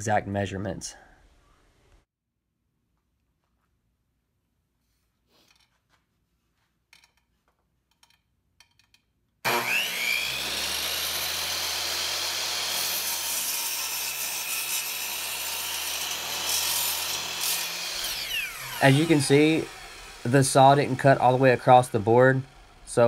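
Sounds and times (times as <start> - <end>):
miter saw cutting wood: 9.4 - 23.0.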